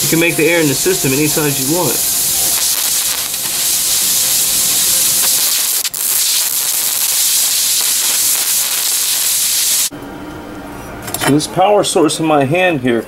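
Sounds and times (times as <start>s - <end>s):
gas torch hissing: 0.0s - 9.9s.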